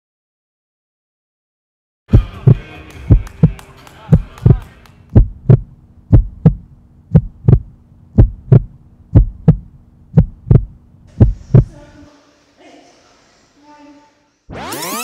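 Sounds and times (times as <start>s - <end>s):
heartbeat double thumps: 2.1s - 11.8s
steady low hum: 2.1s - 12.6s.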